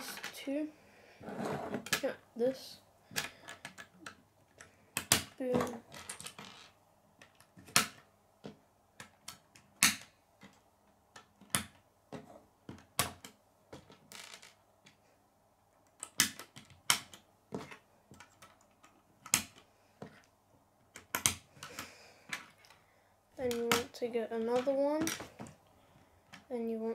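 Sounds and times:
plastic pieces clicking: 3.1 - 15.0, 15.9 - 20.3, 20.9 - 22.8.

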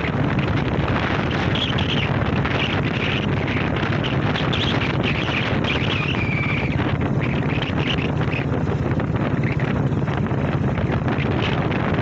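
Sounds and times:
steady low rumble: 0.0 - 12.0
wind buffeting microphone: 0.0 - 12.0.

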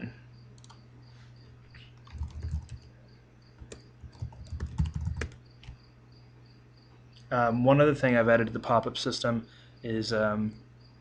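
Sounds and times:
keyboard typing clicks: 0.6 - 0.8, 2.0 - 2.9, 3.6 - 5.8.

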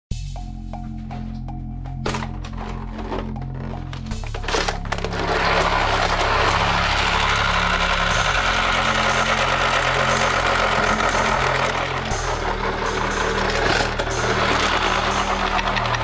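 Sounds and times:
toy blaster buzzing: 4.2 - 16.0.

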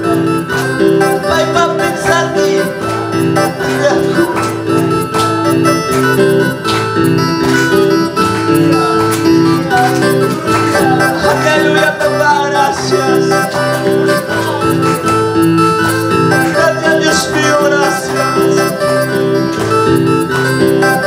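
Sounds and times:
electronic keyboard music: 0.0 - 21.0.

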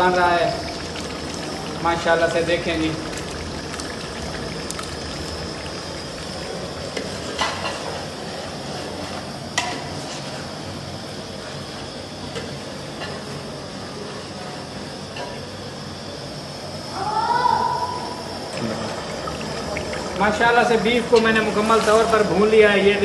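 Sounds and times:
meat sizzling in oil: 0.0 - 8.4.

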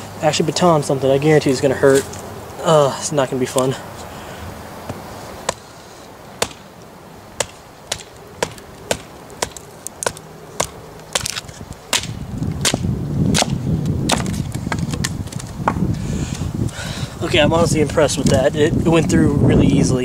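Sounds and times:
log splitting and rustling: 4.8 - 16.8.

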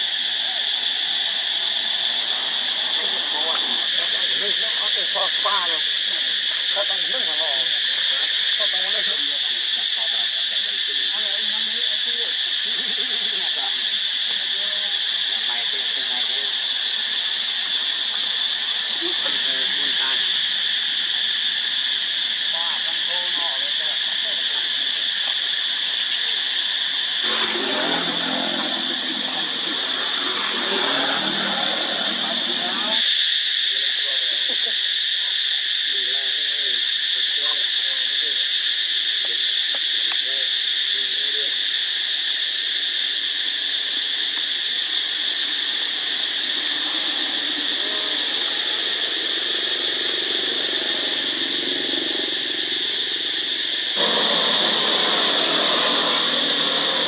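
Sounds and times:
high-pitched insect chorus: 0.0 - 57.0
muffled voices: 2.8 - 17.1, 18.9 - 21.5, 27.2 - 33.0.

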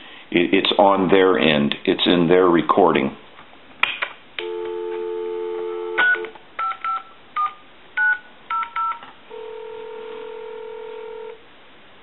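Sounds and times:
telephone ringback tone: 4.4 - 11.4.

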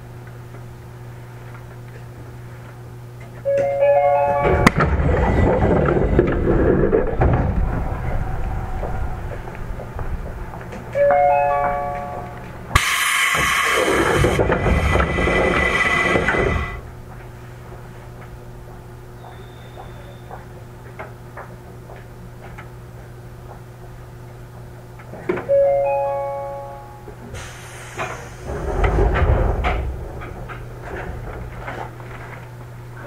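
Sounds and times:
electric train humming: 3.4 - 33.0
bell-like chime: 3.5 - 4.7, 11.0 - 12.4
rush of noise: 4.7 - 10.9, 12.7 - 16.8.

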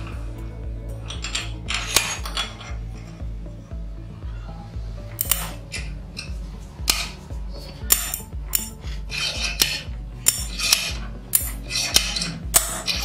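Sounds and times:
background music with steady beat: 0.0 - 13.0
metallic clinks and scrapes: 1.0 - 3.2, 5.1 - 13.0.

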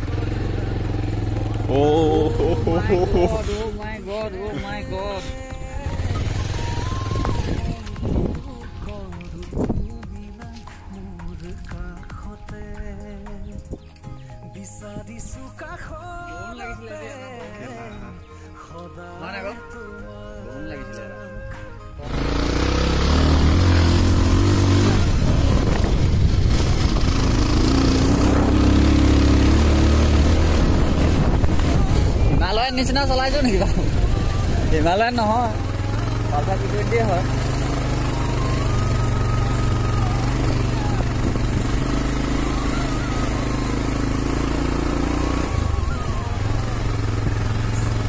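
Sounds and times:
motorcycle engine under load: 0.0 - 3.8, 22.0 - 32.5, 33.4 - 48.0
wind noise on microphone: 2.9 - 10.5, 22.7 - 29.1, 29.8 - 35.1, 39.9 - 43.0.

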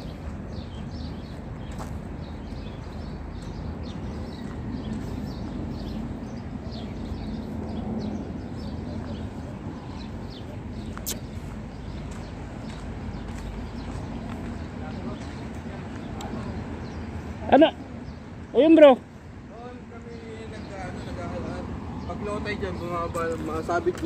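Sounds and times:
wind buffeting microphone: 0.0 - 17.2
small birds chirping: 0.0 - 24.0
sharp click: 11.0 - 11.3.

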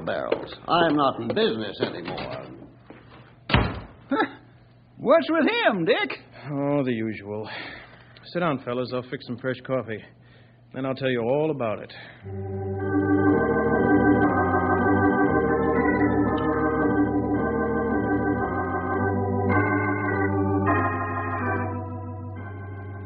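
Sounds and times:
organ chords with vibrato: 12.2 - 23.0.

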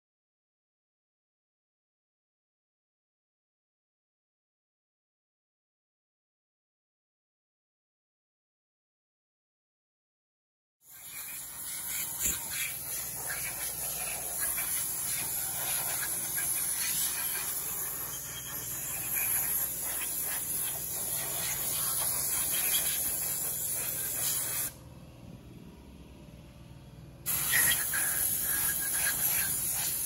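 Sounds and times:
compressed air sprayer hissing: 10.9 - 24.8, 27.3 - 30.0.

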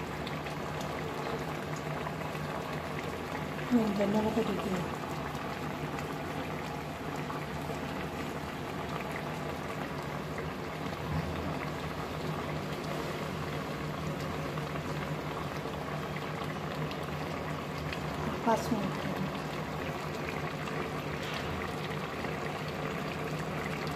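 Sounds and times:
broth boiling in a metal pot: 0.0 - 23.9.

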